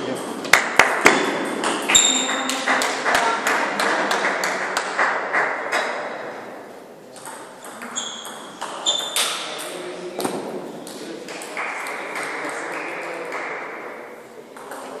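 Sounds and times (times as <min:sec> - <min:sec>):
table tennis balls clicking: 0:00.2 - 0:05.9
short high squeaks: 0:07.9 - 0:09.4.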